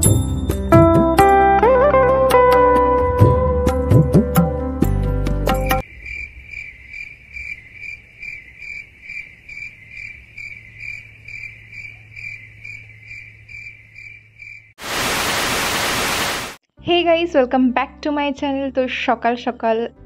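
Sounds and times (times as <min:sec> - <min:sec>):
cricket chirping: 0:05.8 - 0:14.7
tv static hiss: 0:14.8 - 0:16.6.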